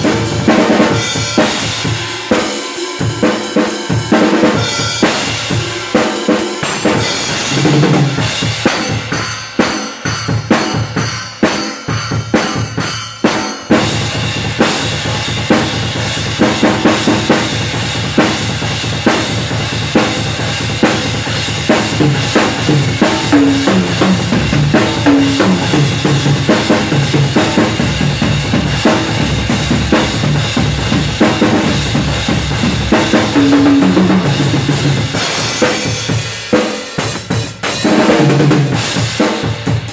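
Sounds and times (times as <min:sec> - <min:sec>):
drum kit played fast: 0:00.0 - 0:39.9.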